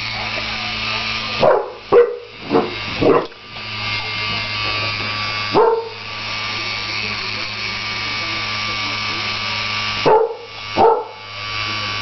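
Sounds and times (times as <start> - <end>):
electric fan motor humming: 0.0 - 12.0
dog barking: 1.4 - 3.3, 5.6 - 5.9, 10.1 - 11.2.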